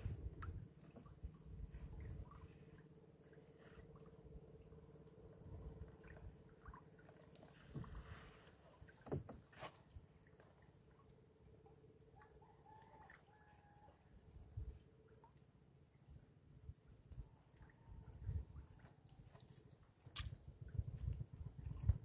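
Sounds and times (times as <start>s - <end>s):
soft knocks against boat: 7.5s - 9.8s.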